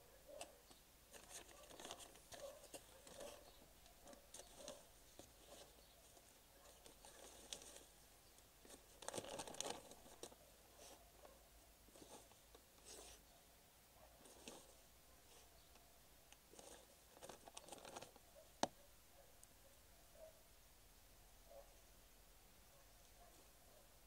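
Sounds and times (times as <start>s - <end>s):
plastic bag crinkling: 6.6s - 8.0s, 8.6s - 10.4s, 16.5s - 18.2s.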